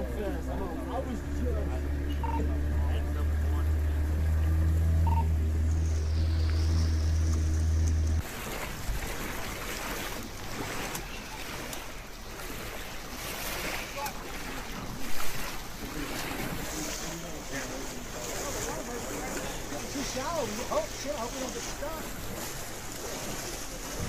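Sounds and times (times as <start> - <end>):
rushing water: 0.0 - 24.0
low mechanical hum: 0.8 - 11.4.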